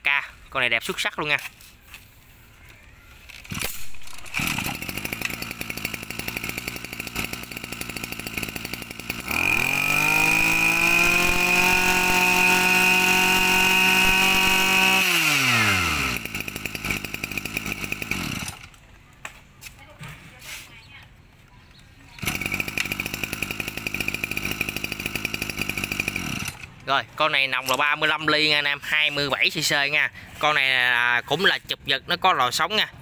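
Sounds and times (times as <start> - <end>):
brush cutter engine revving: 3.2 - 18.8, 22.1 - 31.0.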